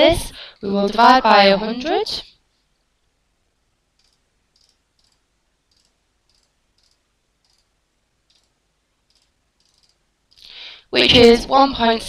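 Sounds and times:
faint computer mouse clicks: 4.0 - 7.7, 8.3 - 10.5.

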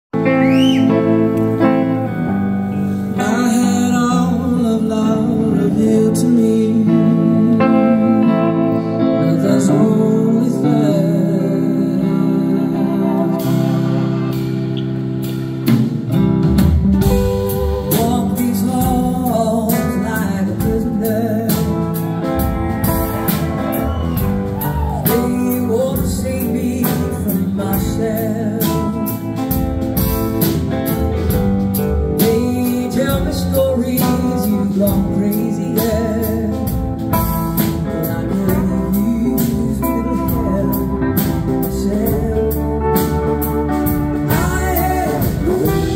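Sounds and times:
rock band playing: 0.1 - 45.9
organ chords: 0.2 - 45.9
lead vocal singing: 3.0 - 14.3, 17.2 - 22.2, 23.3 - 29.4, 32.2 - 37.0, 37.6 - 45.9.

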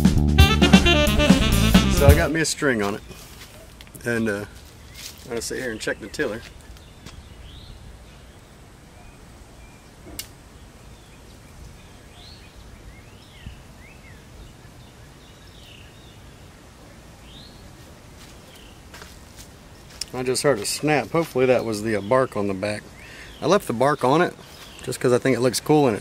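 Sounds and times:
birds chirping: 2.0 - 26.0
bow snapping: 10.0 - 10.4.

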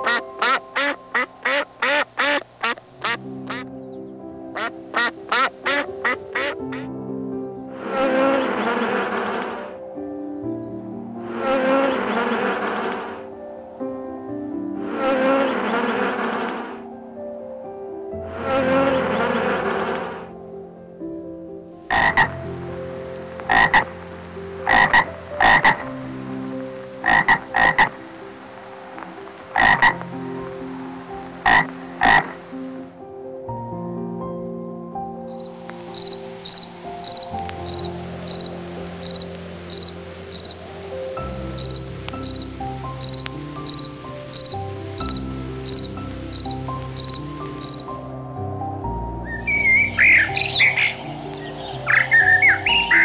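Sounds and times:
gecko croaking: 0.0 - 3.7, 4.6 - 6.9, 21.9 - 22.4, 23.5 - 23.9, 24.6 - 25.8, 27.0 - 28.0, 29.6 - 30.0, 31.4 - 32.4, 35.3 - 40.7, 41.5 - 48.0
soft background music: 0.0 - 53.0
cricket chirping: 35.2 - 48.0, 49.2 - 53.0.

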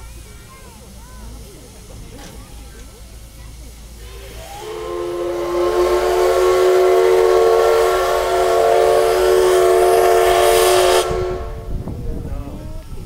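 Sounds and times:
steam locomotive whistle blast: 4.0 - 11.7.

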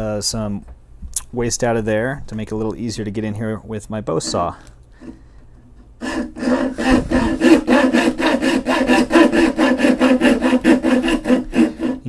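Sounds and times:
saw cutting wood: 4.2 - 5.2, 6.0 - 12.0.

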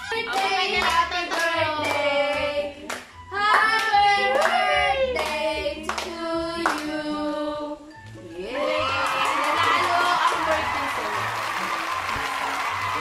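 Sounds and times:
group of people singing: 0.0 - 7.9
hand-clapping: 0.3 - 2.0, 2.9 - 4.6, 9.0 - 13.0.

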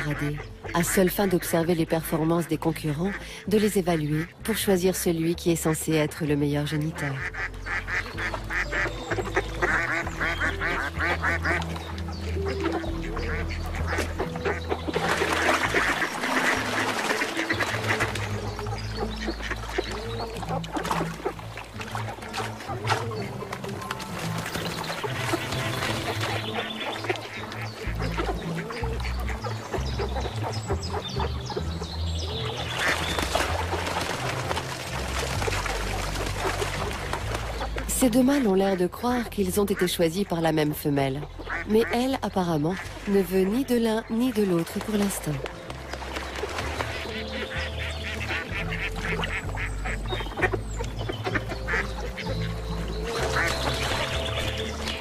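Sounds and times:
background music with bass: 0.0 - 44.5, 45.3 - 55.0
ducks quacking: 0.0 - 55.0.

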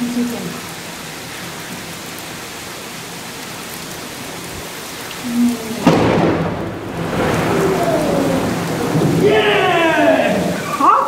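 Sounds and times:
heavy rain falling: 0.0 - 11.0
thunderclap and rolling rumble: 5.7 - 10.8.

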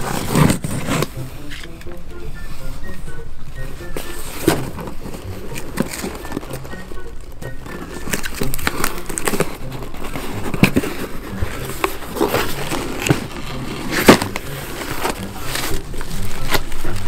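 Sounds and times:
cardboard box rustling and scraping: 0.0 - 1.7, 3.8 - 6.9, 7.5 - 17.0
cardboard flaps cracking: 4.3 - 6.8, 7.5 - 17.0.

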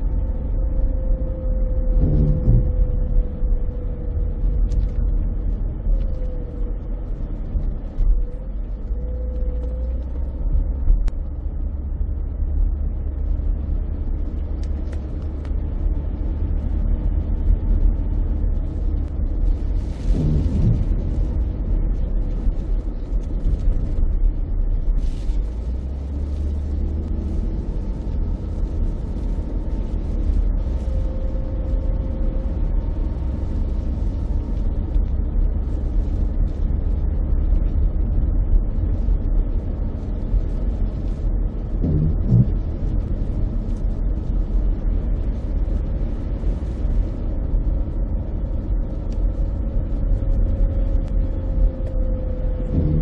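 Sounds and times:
car driving on wet road: 0.0 - 53.0.

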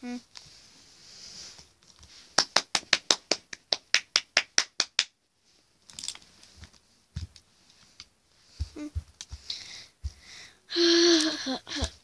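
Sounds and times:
soft handling noises: 5.4 - 10.3.

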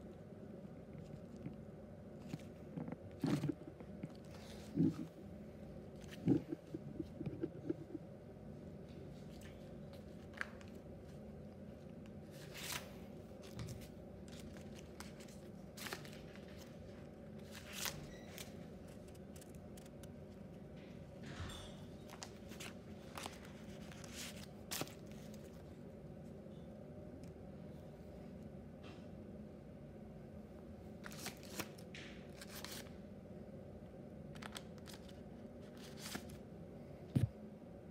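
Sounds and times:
steady low hum: 0.0 - 37.9
paper crinkling and rustling: 12.2 - 20.9, 22.0 - 25.8, 31.0 - 33.0, 34.3 - 36.4.

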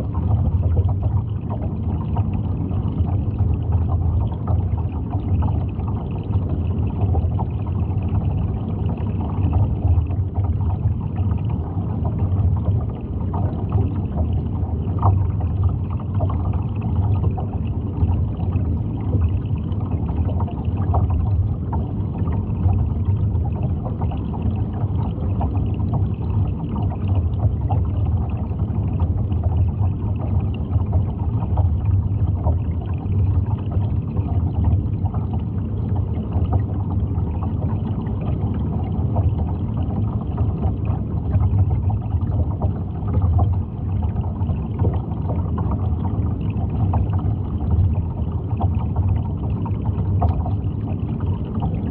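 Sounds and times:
underwater water rumble: 0.0 - 51.9.

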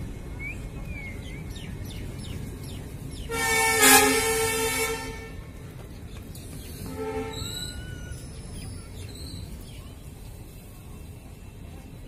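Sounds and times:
low platform noise: 0.0 - 12.0
locomotive horn blast: 3.3 - 5.4, 6.9 - 7.7.

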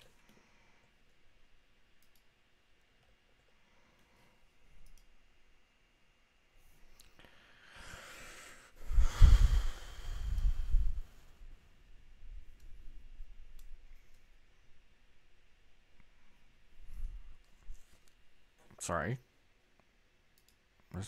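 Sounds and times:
mouse clicks: 2.0 - 2.3.

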